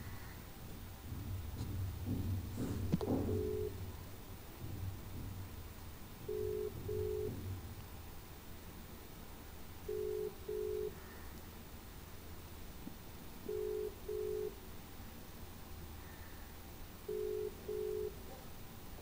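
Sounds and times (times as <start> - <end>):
telephone ringback beeps: 3.3 - 3.8, 6.3 - 7.3, 9.9 - 11.0, 13.5 - 14.6, 17.1 - 18.2.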